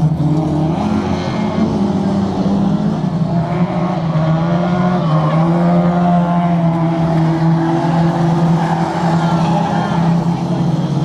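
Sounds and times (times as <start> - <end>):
racing car engines passing by: 0.0 - 11.0.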